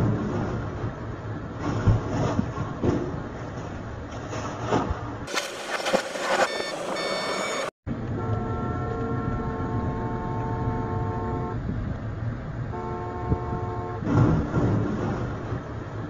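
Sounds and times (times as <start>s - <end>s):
road and engine rumble: 0.0s - 16.0s
car horn blasts: 7.0s - 11.6s, 12.7s - 14.1s.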